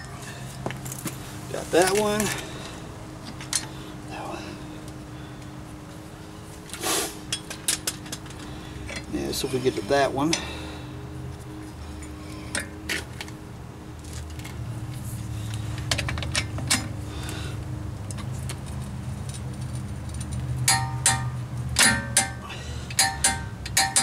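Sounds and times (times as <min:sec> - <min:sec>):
lug nuts clinking in hand: 0:18.1 - 0:24.0.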